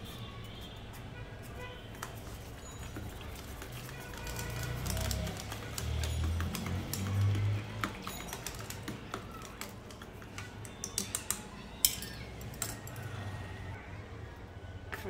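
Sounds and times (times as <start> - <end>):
utensil tapping a mixing bowl: 2.8 - 12.8.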